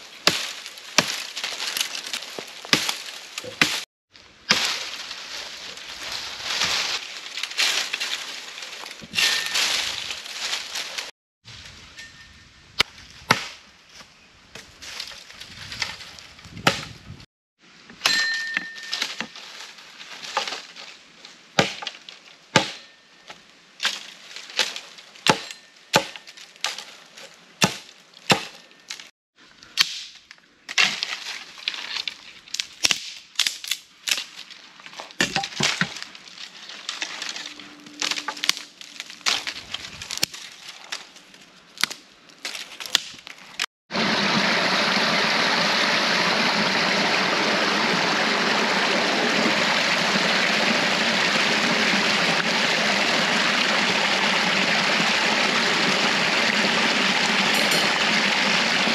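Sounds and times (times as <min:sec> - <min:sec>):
twigs and dry leaves rustling: 0:00.0 - 0:12.1, 0:12.8 - 0:17.3, 0:18.7 - 0:29.1, 0:29.7 - 0:43.7
dry sticks snapping: 0:32.0 - 0:43.7.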